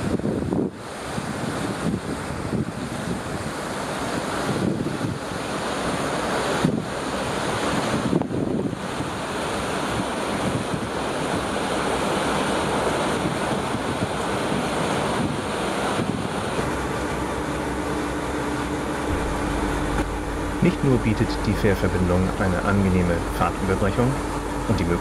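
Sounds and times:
wind buffeting microphone: 0.0 - 5.5, 13.2 - 25.0
rushing wake water: 0.0 - 25.0.

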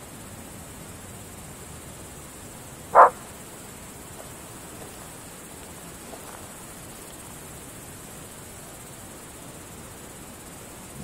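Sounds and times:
night insects hissing: 0.0 - 11.0
dog barking: 3.0 - 3.2.

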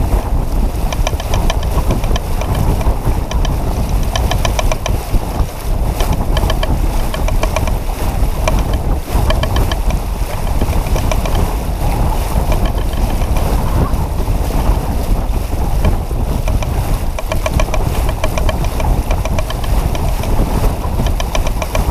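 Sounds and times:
water rushing along a hull: 0.0 - 21.9
wind buffeting the microphone: 0.0 - 21.9
fast ticking rattle: 0.9 - 5.0, 6.0 - 11.5, 12.4 - 13.4, 15.9 - 21.9.

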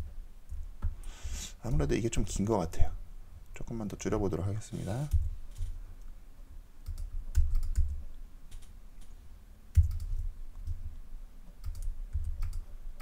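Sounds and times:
keyboard and mouse clicks: 6.8 - 10.9, 11.5 - 13.0.

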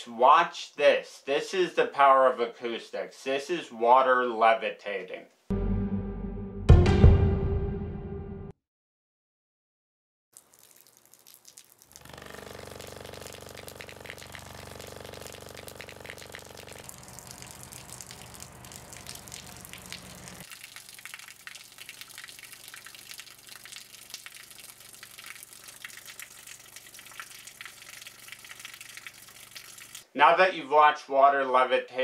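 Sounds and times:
low electronic tone: 5.5 - 6.7
water splashing: 10.4 - 30.1.

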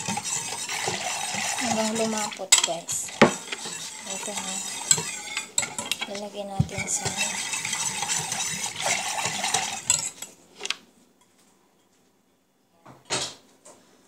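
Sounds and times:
whisk scraping metal pot: 0.0 - 10.7.

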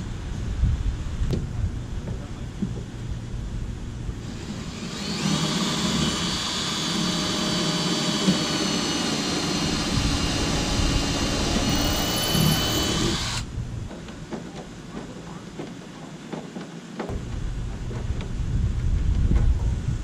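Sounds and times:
cordless drill whining: 4.2 - 13.5.

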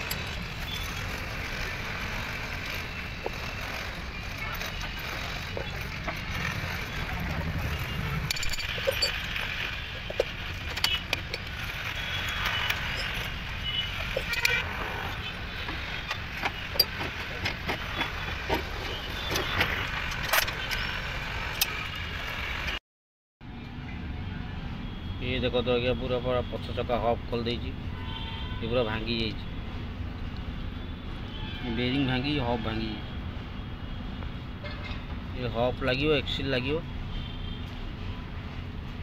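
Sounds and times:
tools clinking on metal parts: 2.2 - 14.6.

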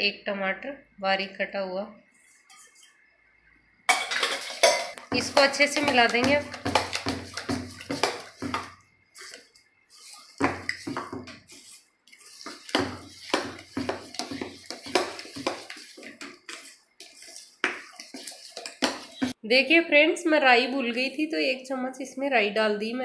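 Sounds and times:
wet batter squelching: 5.0 - 19.4.

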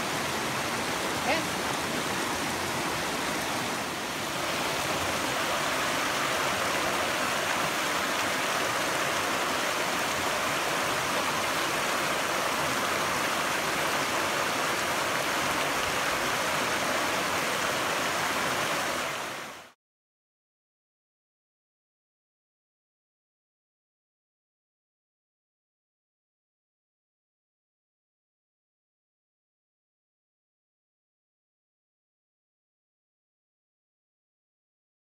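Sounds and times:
stream rushing over rocks: 0.0 - 19.8.

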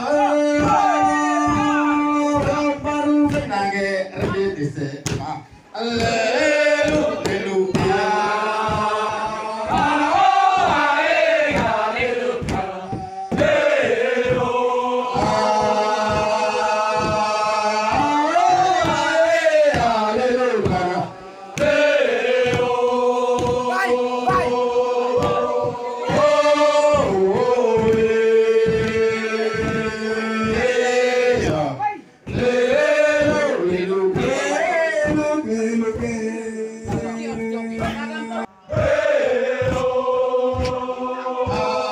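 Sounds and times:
men chanting in long held notes: 0.0 - 4.8, 5.7 - 41.9
steady drum beat: 0.0 - 41.9.

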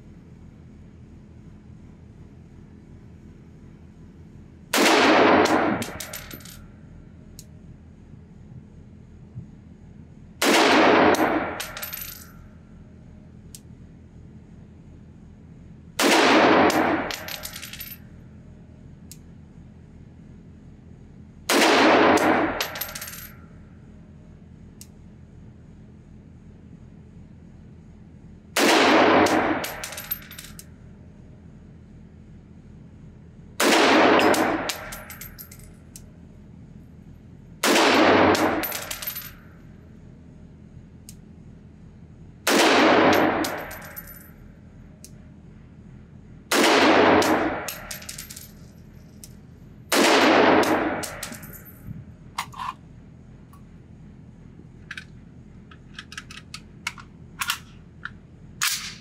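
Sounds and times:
rifle shots echoing indoors: 4.7 - 6.6, 10.4 - 12.2, 16.0 - 18.0, 21.5 - 23.3, 28.6 - 30.6, 33.6 - 35.4, 37.6 - 39.6, 42.4 - 44.2, 46.5 - 48.4, 49.9 - 51.6, 58.6 - 59.0.

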